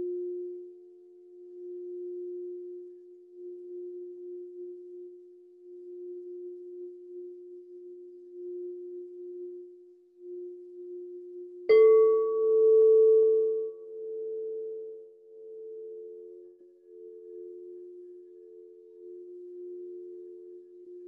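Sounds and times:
singing bowl tone: 0.0s - 21.0s
struck bowl ringing: 11.7s - 13.9s.

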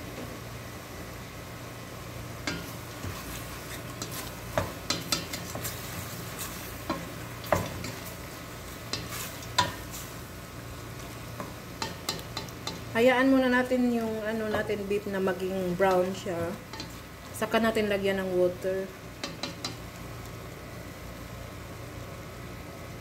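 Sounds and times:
meat sizzling: 0.0s - 22.6s
steady low hum: 0.0s - 23.0s
wooden spatula scraping a pot: 2.5s - 10.1s.

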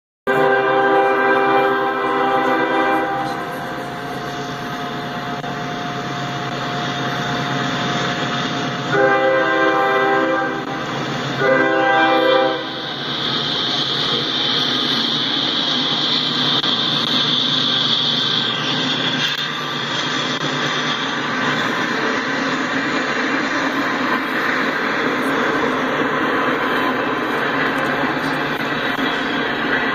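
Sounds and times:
train air horn blasts: 0.3s - 5.5s, 8.8s - 13.0s
freight train rumbling: 0.3s - 29.9s.

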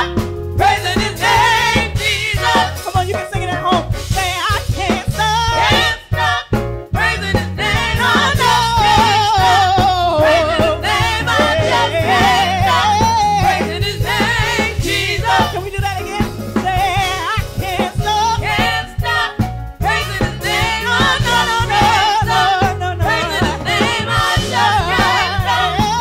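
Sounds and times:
band with steady bass line: 0.0s - 26.0s.

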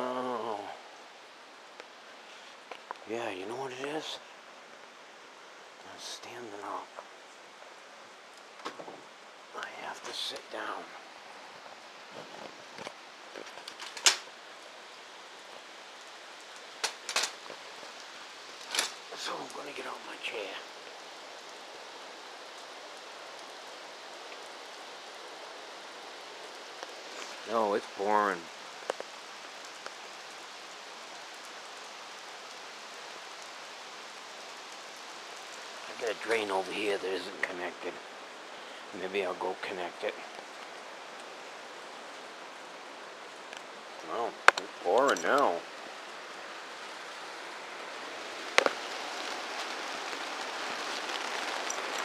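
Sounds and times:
rain hissing: 0.0s - 52.0s
faint drip ticks: 1.7s - 3.1s, 22.4s - 25.4s, 26.1s - 27.5s, 28.7s - 36.8s, 40.1s - 41.4s, 43.3s - 45.5s
lawn chair frame clacking: 13.4s - 14.3s, 16.8s - 17.4s, 18.6s - 19.0s.

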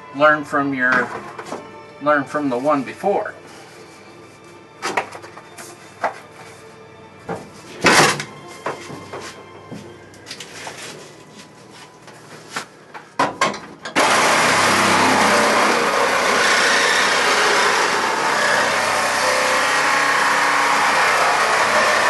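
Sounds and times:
reciprocating saw cutting sheet steel: 14.0s - 22.0s.

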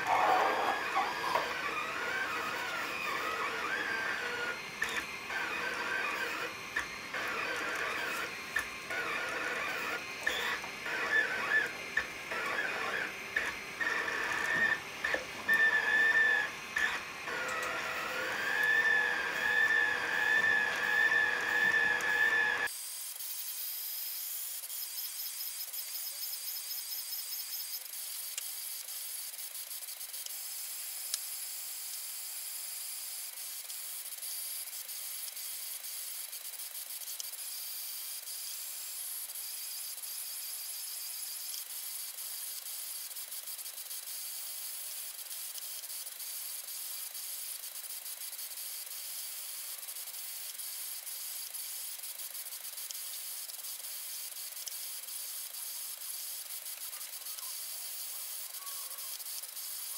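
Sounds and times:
three d printer motors whining: 0.0s - 22.7s.

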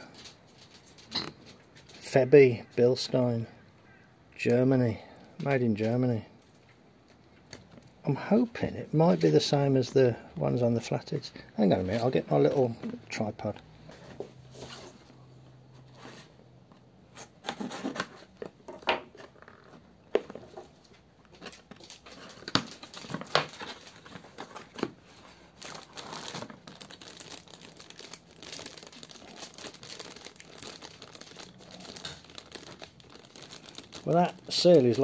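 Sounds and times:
plastic packaging crinkling: 17.4s - 35.0s.

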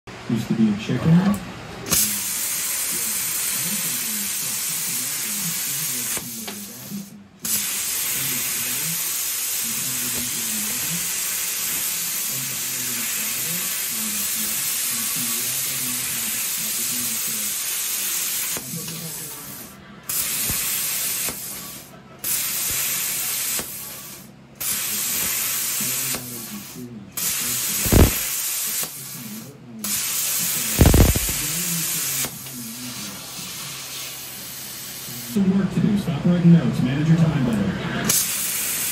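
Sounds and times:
plasma cutter arc hissing: 1.9s - 35.4s, 38.1s - 38.9s
sharp pops: 27.2s - 29.0s, 30.8s - 31.4s.

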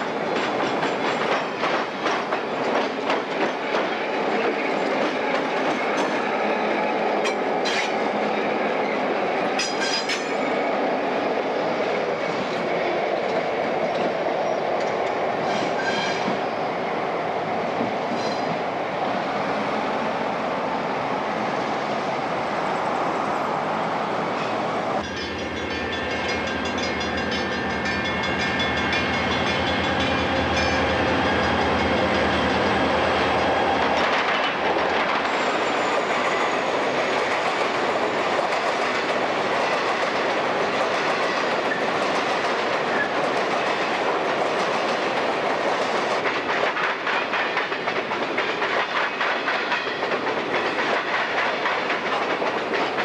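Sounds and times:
hopper cars clickety-clack: 0.0s - 8.2s, 8.9s - 10.5s, 25.0s - 53.0s
train rolling noise: 0.0s - 53.0s
diesel locomotives droning: 21.3s - 37.2s.

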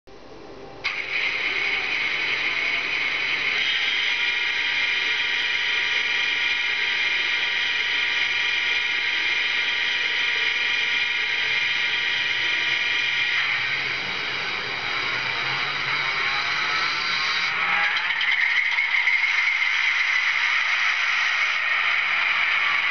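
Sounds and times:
model locomotive engine sound: 0.8s - 22.9s.

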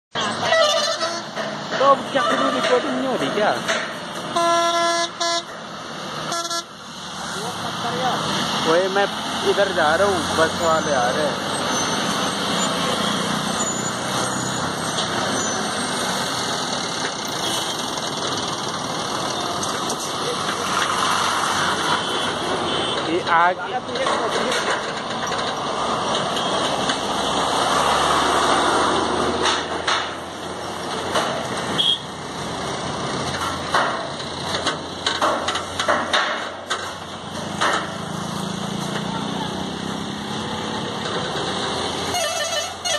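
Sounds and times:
truck engine and rolling noise: 0.1s - 42.9s
sharp metal clanks and knocks: 1.3s - 4.2s, 23.9s - 27.0s, 29.4s - 30.3s, 33.3s - 38.0s.

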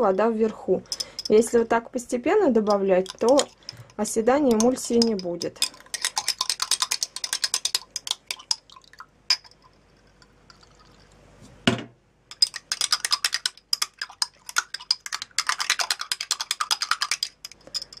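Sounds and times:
teaspoon clinking in glass jar: 0.8s - 1.7s, 2.6s - 11.2s, 12.3s - 18.0s
spoon knocking on jar: 4.5s - 8.6s.

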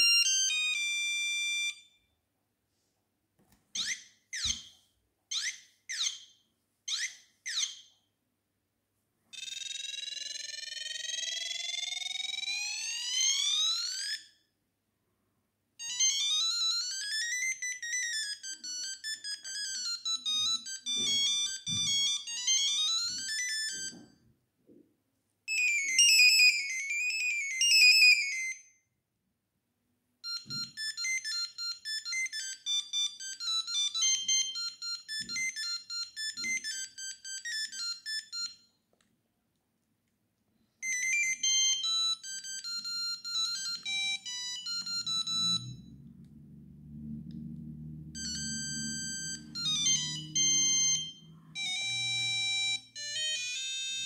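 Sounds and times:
electronic phone ringtones: 0.0s - 2.0s, 9.4s - 14.3s, 15.8s - 24.1s, 25.5s - 28.7s, 30.2s - 38.7s, 40.8s - 46.0s, 48.2s - 54.0s.

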